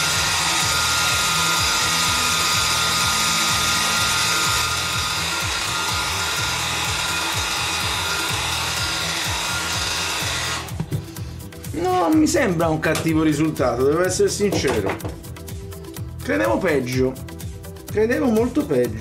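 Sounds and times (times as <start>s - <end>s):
hair dryer running: 0.0s - 11.4s.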